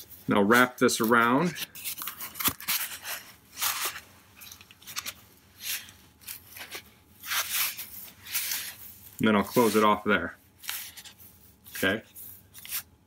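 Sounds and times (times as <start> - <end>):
foam rubbing and scraping: 5.6 - 10.0.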